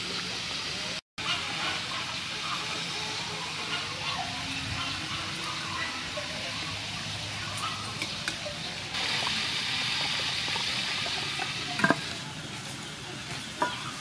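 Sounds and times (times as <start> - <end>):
pork sizzling in hot oil: 6.8 - 14.0.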